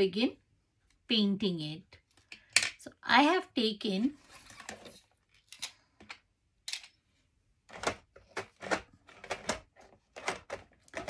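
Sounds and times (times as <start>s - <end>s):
craft supplies clicking and knocking: 7.7s - 11.0s.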